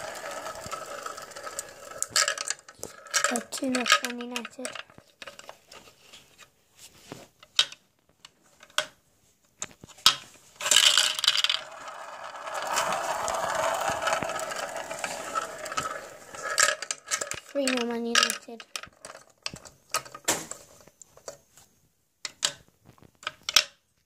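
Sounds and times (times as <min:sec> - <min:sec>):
marbles rattling in plastic dish: 0:00.0 - 0:05.5, 0:10.6 - 0:20.2
marbles clicking on plastic track: 0:00.0 - 0:05.6, 0:10.6 - 0:20.2.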